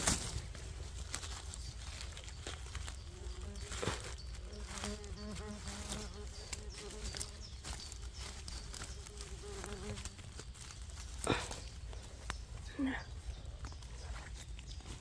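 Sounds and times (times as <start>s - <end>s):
dry leaves crackling: 0.0s - 15.0s
flying insect buzzing: 3.1s - 7.5s, 9.0s - 10.2s.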